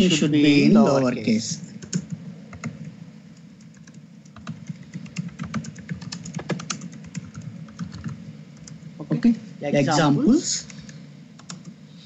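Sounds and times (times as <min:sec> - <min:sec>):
keyboard typing: 0:01.8 - 0:02.9, 0:03.6 - 0:08.8, 0:10.8 - 0:11.8.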